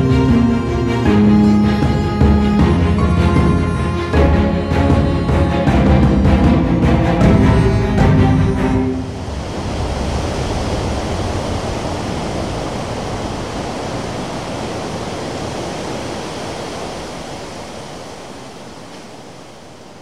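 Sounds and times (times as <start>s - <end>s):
surf breaking on beach: 9.0s - 20.0s.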